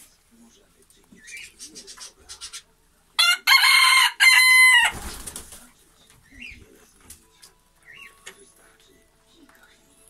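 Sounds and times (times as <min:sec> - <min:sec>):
rooster crowing: 0:03.2 - 0:05.0.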